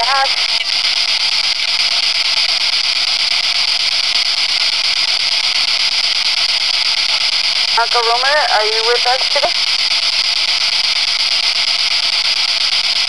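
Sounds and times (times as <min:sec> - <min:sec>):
radio static hiss: 0:00.0 - 0:13.0.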